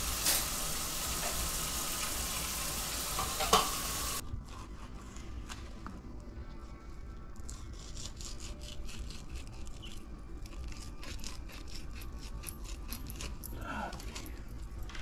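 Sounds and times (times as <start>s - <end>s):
knife scraping fish scales: 7.5s - 13.5s.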